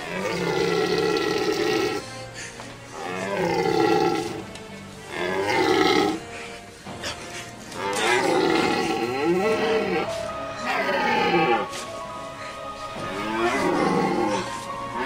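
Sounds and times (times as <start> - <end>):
stag roaring: 0.0 - 2.1, 2.9 - 4.5, 5.1 - 6.3, 7.7 - 11.7, 13.0 - 15.0.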